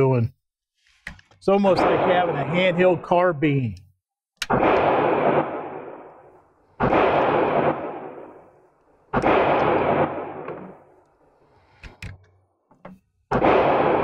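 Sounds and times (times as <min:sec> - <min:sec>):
echoing gunshots: 0:01.6 - 0:03.3, 0:04.4 - 0:11.1, 0:13.3 - 0:14.0.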